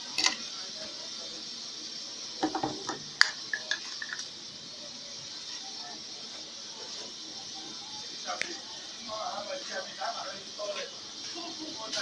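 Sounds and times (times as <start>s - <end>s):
background hiss: 0.0s - 12.0s
plastic bottles clicking and knocking: 2.4s - 4.3s.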